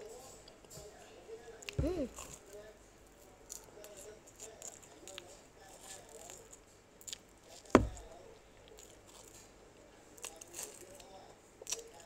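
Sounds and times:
chewing marshmallow: 3.4s - 12.0s
sharp knock: 7.8s - 8.1s.

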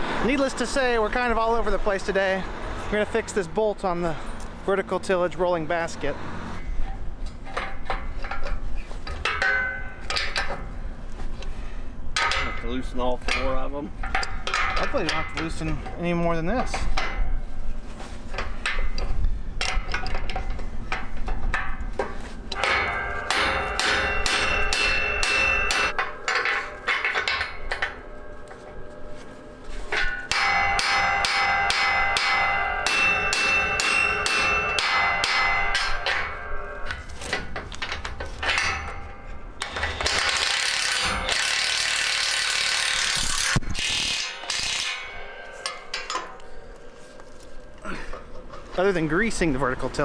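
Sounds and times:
hand tools clanking on steel: 6.6s - 10.7s, 12.1s - 17.4s, 18.3s - 50.0s
metallic ringing tone: 22.6s - 37.3s, 44.2s - 49.8s
ratchet wrench clicking: 39.6s - 45.0s.

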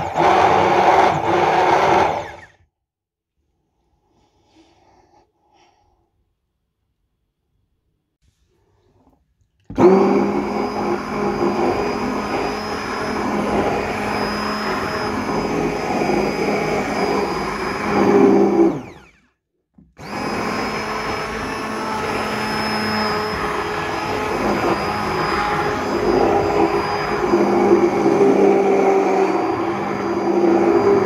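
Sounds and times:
stick blender motor whirring: 0.0s - 2.6s, 9.7s - 19.4s, 20.0s - 31.0s.

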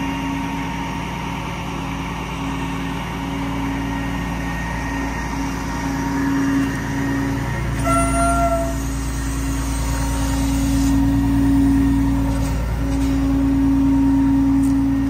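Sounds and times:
truck diesel engine idling: 0.0s - 15.0s.

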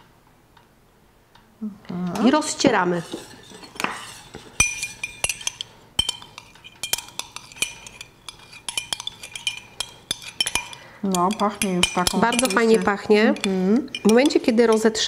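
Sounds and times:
teaspoons clinking in glass: 4.2s - 15.0s.

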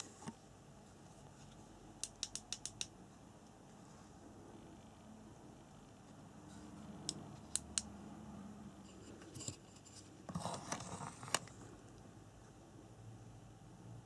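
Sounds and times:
sharp clicks: 2.0s - 3.0s.

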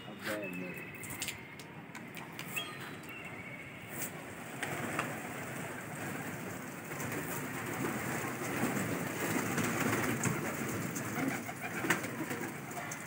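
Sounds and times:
pigeon wings flapping: 4.0s - 13.0s.

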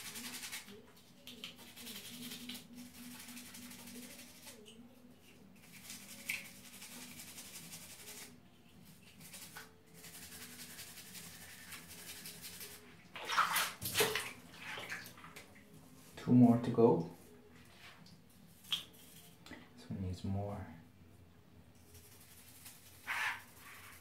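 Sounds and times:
water sloshing and splashing: 13.1s - 15.8s.

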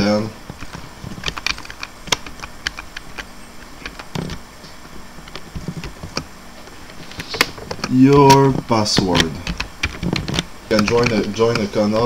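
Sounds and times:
faint steady hiss: 0.0s - 12.0s
computer keys clicking: 0.6s - 4.4s, 7.2s - 12.0s.

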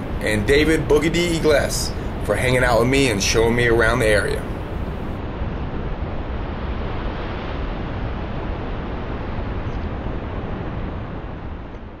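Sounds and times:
ocean surf breaking: 0.0s - 5.2s.

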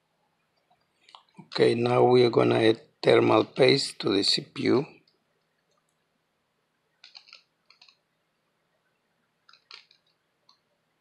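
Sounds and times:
faint plastic clicks: 0.5s - 1.6s, 5.0s - 6.1s, 6.9s - 10.7s.

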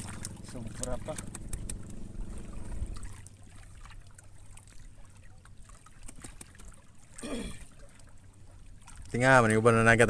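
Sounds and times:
faint trickling water: 0.0s - 10.0s.

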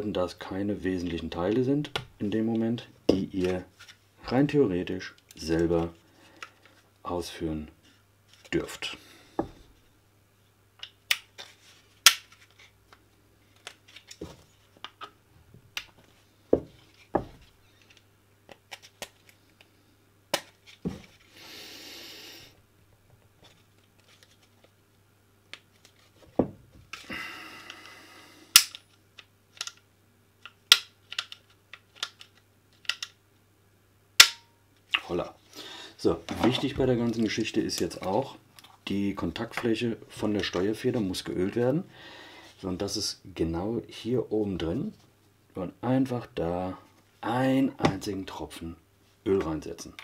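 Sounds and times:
sharp clicks of pistol parts: 28.5s - 28.9s.

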